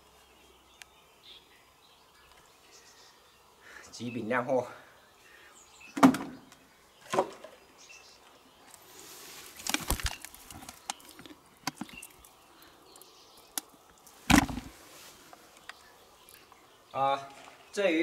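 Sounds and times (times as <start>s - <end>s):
brief rustle: 8.7s - 12.1s
fish slapping against plastic: 9.6s - 11.0s.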